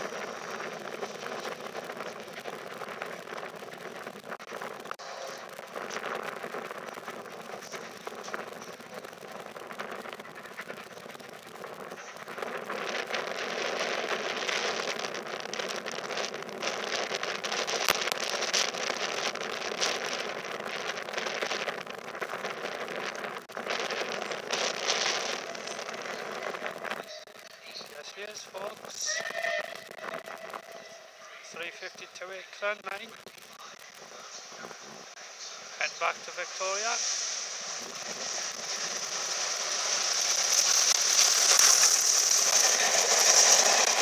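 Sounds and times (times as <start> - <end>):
train crackling clatter: 0.0 - 44.0
train rushing hiss: 36.5 - 44.0.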